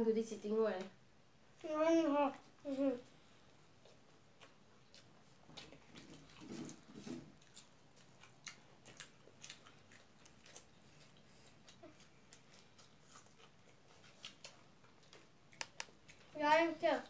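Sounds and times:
fingers mixing food on plates: 1.6s - 17.0s
chewing clicks: 7.4s - 16.4s.

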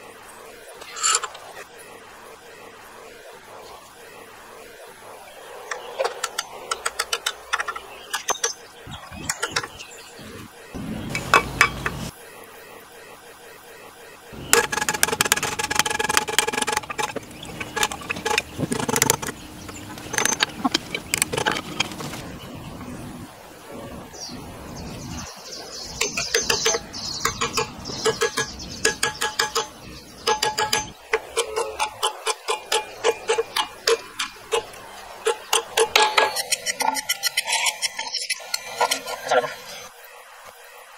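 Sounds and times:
metal parts clinking and knocking: 14.5s - 22.2s, 26.1s - 34.7s
mallet tapping wooden handle: 26.0s - 34.3s.

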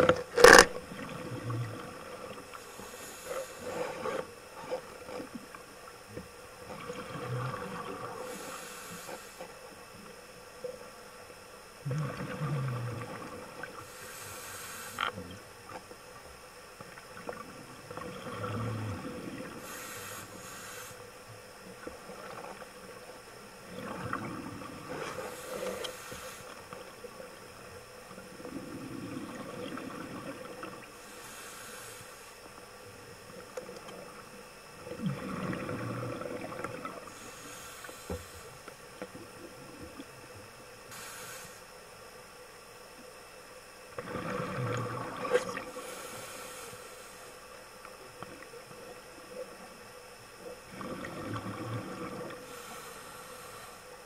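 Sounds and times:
faint steady hum: 0.0s - 54.0s
regulator hissing inhale: 2.6s - 4.3s, 8.0s - 9.6s, 13.8s - 15.1s, 19.5s - 21.1s, 24.9s - 26.6s, 31.0s - 32.4s, 37.0s - 38.7s, 40.9s - 41.8s, 45.7s - 47.5s, 52.4s - 54.0s
exhaust bubbles burbling: 11.8s - 13.7s, 17.3s - 19.6s, 34.8s - 37.1s, 44.0s - 45.7s, 50.7s - 52.4s.

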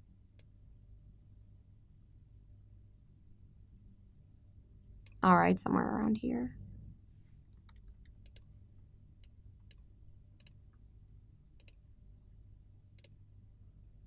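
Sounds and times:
low steady hum: 0.0s - 14.0s
computer mouse clicks: 7.5s - 8.5s, 9.2s - 10.6s, 11.6s - 11.8s, 13.0s - 13.2s.

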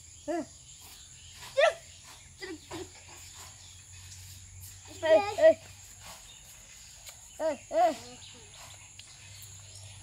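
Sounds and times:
high insect trill: 0.0s - 10.0s.

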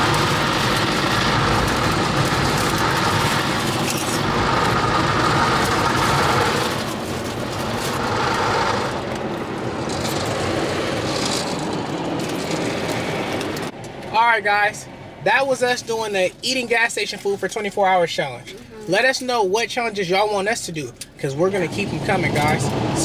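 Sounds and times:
automatic car wash rushing: 0.0s - 13.8s, 21.4s - 23.0s.

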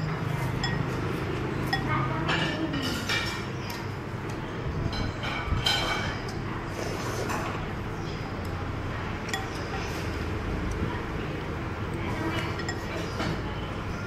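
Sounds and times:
utensils clinking on ceramic bowl: 0.0s - 3.9s, 4.8s - 7.6s, 9.2s - 10.2s, 12.1s - 13.6s.

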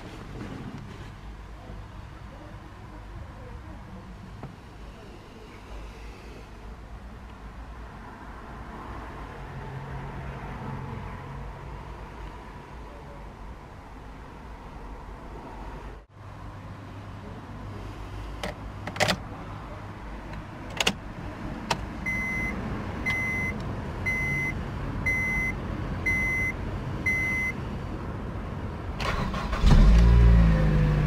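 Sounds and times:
dashboard warning chime beeping: 22.0s - 27.6s
car engine starting: 29.0s - 31.0s.

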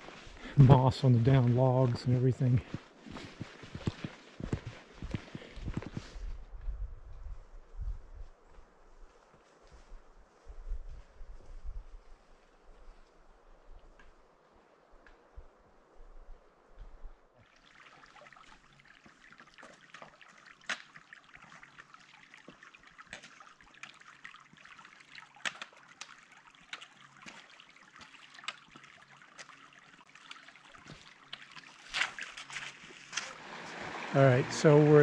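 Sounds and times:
stream trickling over rocks: 17.4s - 35.0s.

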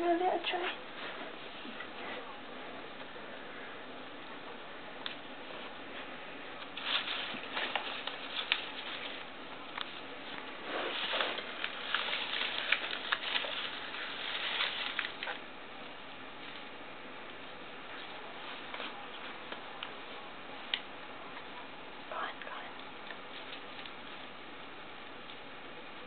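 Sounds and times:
paper and plastic bag rustling: 6.6s - 15.5s.

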